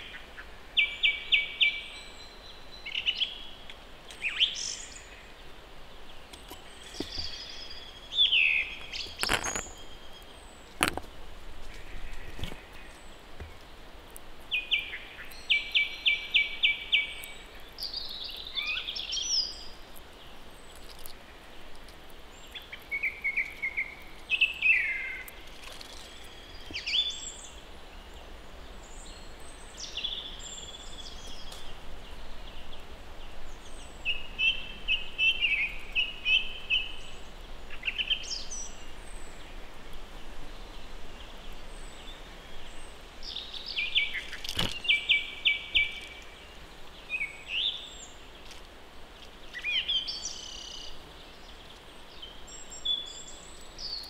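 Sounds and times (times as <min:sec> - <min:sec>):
songbirds singing and chirping: 0:00.0 - 0:54.0.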